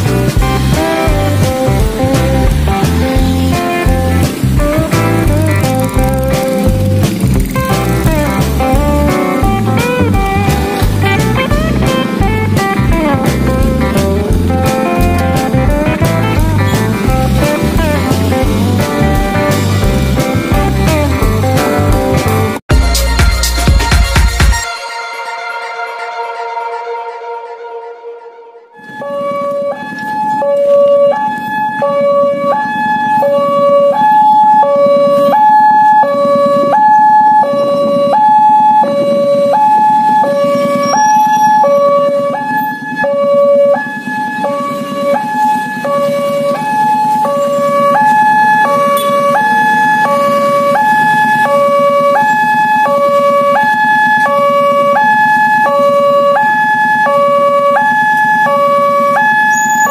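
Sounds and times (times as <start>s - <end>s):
level crossing two-tone alarm: 24.5s - 59.9s.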